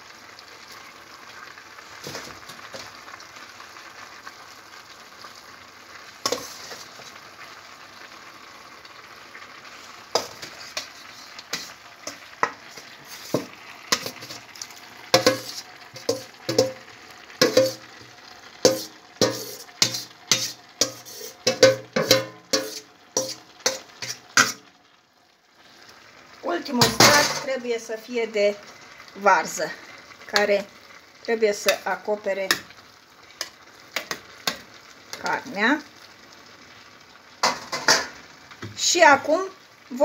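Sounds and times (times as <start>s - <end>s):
low sizzle: 0.0s - 40.0s
metal spoon scraping metal pan: 6.3s - 6.9s, 10.2s - 14.4s, 15.1s - 16.8s, 17.4s - 17.8s, 18.7s - 24.6s.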